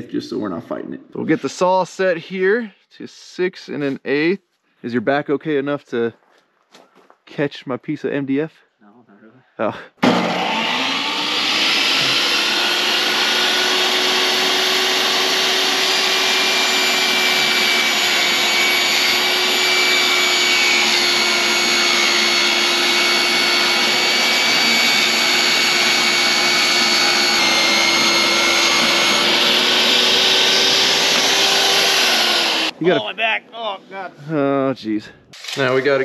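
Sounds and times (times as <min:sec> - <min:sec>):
saw blade cutting through board: 0:10.0 - 0:33.0
table saw motor whine: 0:10.0 - 0:33.0.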